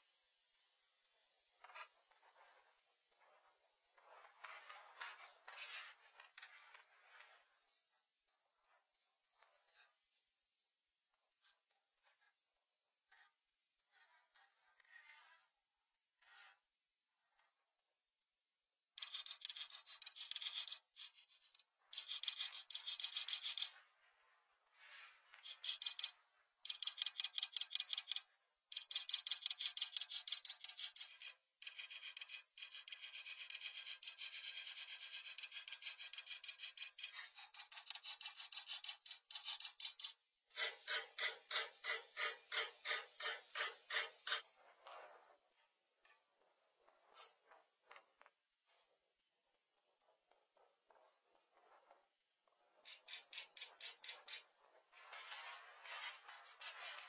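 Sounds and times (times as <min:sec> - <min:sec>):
crayon scratching on paper: 0:19.0 - 0:23.8, 0:25.4 - 0:44.4, 0:52.8 - 0:54.4, 0:55.3 - 0:57.0.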